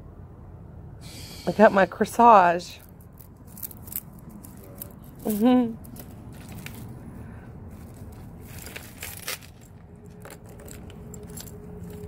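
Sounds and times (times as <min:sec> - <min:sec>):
jewelry clinking and rattling: 0:08.5 - 0:12.0.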